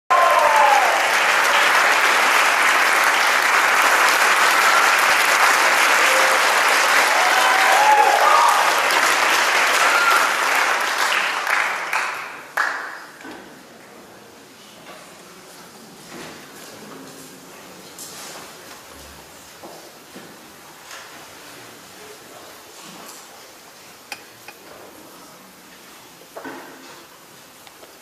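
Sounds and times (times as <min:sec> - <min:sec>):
audience applauding: 0:00.1 - 0:13.2.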